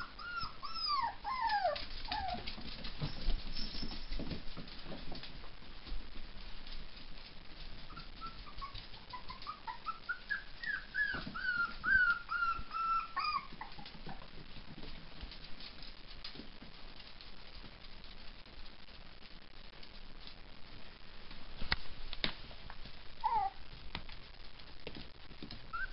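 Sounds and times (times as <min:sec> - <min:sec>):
puppies whimpering: 0:00.0 - 0:02.5, 0:07.9 - 0:14.2, 0:23.2 - 0:23.6.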